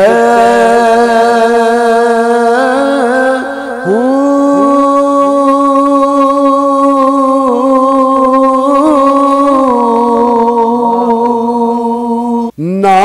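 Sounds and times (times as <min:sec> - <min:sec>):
man singing a long note: 0:00.0 - 0:13.0.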